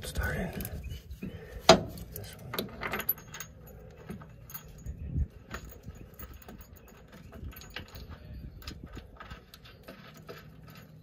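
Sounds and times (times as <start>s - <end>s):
metal tools clinking on bracket: 2.0s - 8.9s.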